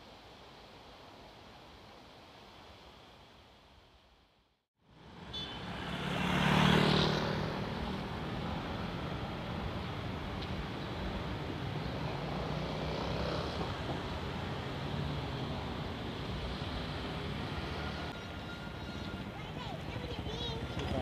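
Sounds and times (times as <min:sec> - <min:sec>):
wind: 0:00.0 - 0:21.0
traffic rumble: 0:04.8 - 0:21.0.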